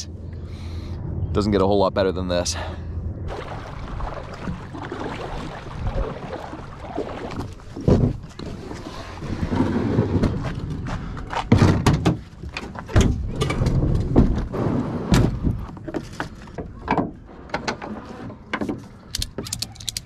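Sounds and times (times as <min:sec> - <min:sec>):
kayak scraping on bed liner: 0:04.3 - 0:10.6
hollow thuds of kayak hull: 0:07.2 - 0:08.4.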